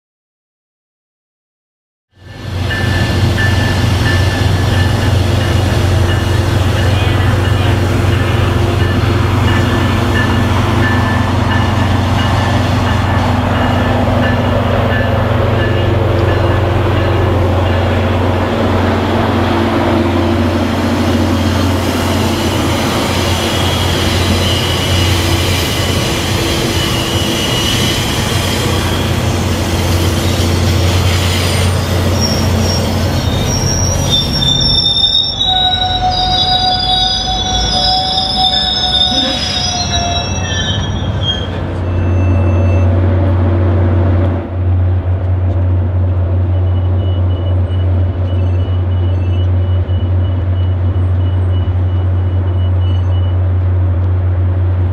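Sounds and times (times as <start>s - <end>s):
diesel locomotive engine drone: 2.1s - 54.9s
train cars rumbling past: 2.2s - 54.9s
high wheel squeals: 20.8s - 43.0s.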